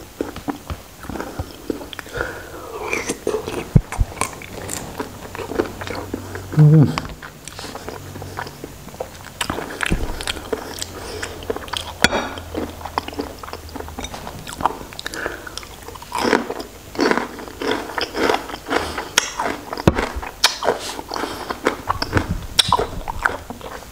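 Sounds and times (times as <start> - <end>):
biting and chewing: 2.8 - 23.9
wet mouth clicks: 21.9 - 23.4.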